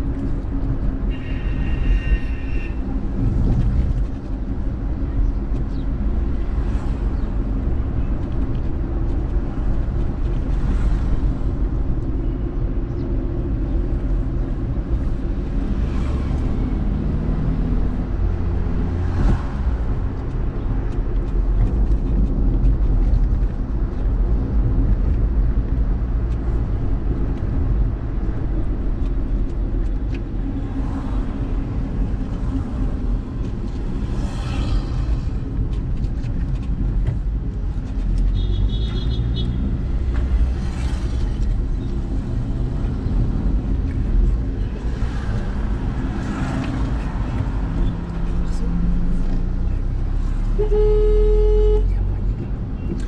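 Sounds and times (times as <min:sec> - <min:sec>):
car engine and road rumble: 0:00.0 - 0:53.0.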